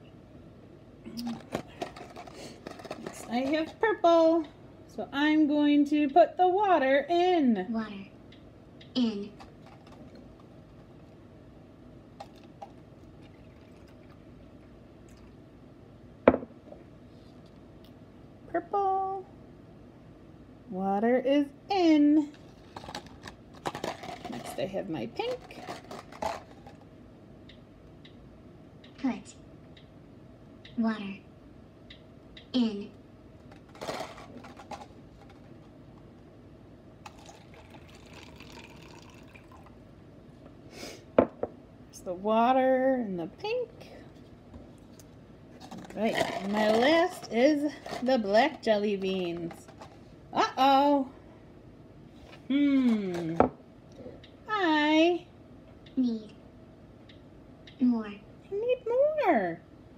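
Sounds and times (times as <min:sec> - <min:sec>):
water trickling into cup: 0:13.2 - 0:14.3, 0:37.1 - 0:39.8.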